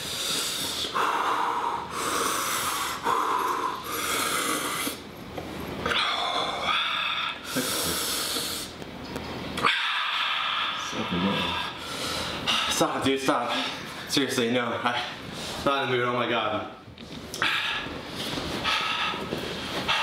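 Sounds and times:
man breathing hard: 0.0 - 5.0, 5.9 - 8.8, 9.6 - 14.0, 17.4 - 20.0.

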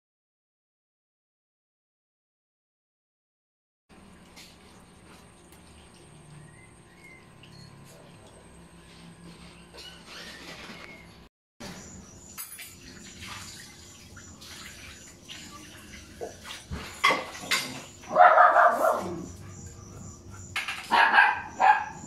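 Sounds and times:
puppies whining: 9.4 - 11.3
puppies barking: 16.1 - 22.0.

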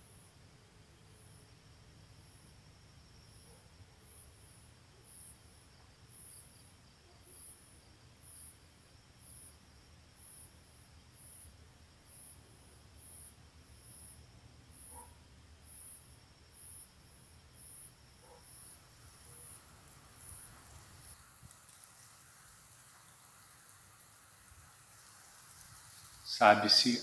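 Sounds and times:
high-pitched insect chirping: 0.0 - 21.2.

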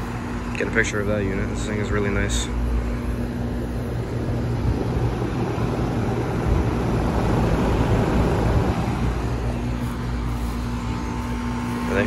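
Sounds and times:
air conditioner condensers humming: 0.0 - 12.0.

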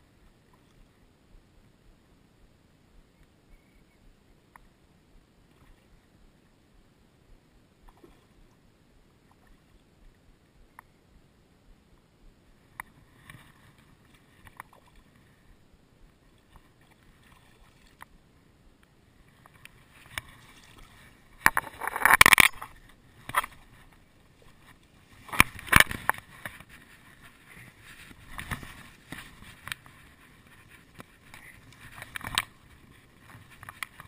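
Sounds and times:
grass rustling and crackling: 19.3 - 34.0.

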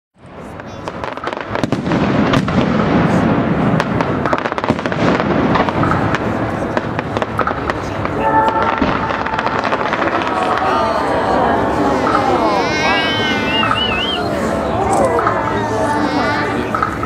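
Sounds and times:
fireworks crackling pops: 0.2 - 11.1
low rumble: 4.9 - 15.8.

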